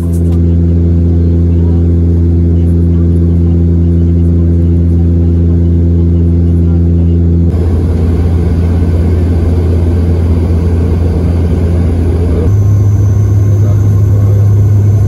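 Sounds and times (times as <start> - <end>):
propeller engines droning: 0.2 - 15.0.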